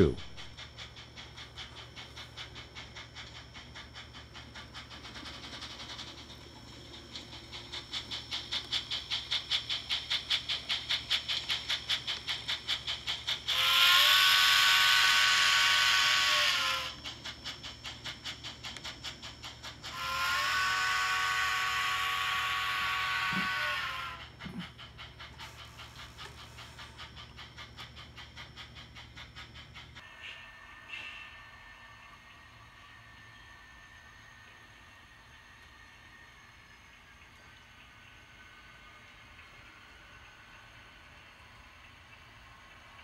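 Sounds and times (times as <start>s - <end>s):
model steam locomotive chuffing: 0.0s - 43.0s
steam hiss: 0.0s - 43.0s
steam whistle blasts: 13.5s - 16.9s, 19.9s - 24.2s.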